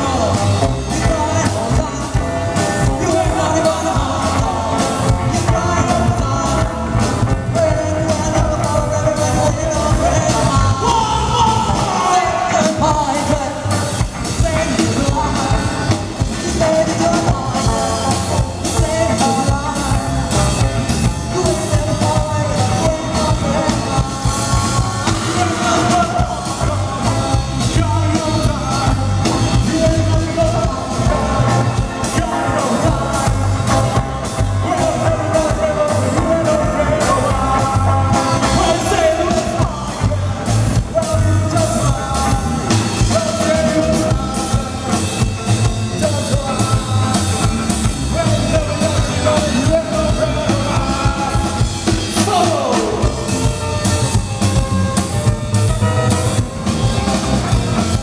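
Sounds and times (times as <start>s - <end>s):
person singing: 0.0s - 58.0s
rockabilly band playing: 0.0s - 58.0s.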